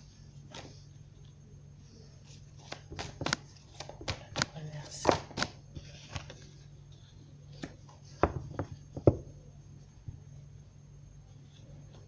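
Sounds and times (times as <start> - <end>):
cards clicking and tapping: 2.6 - 6.4.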